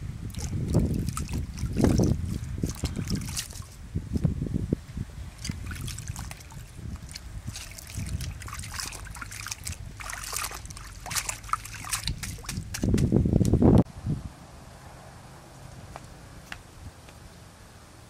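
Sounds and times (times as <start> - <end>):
hands splashing water in a basin: 0.3 - 3.8, 5.4 - 13.1.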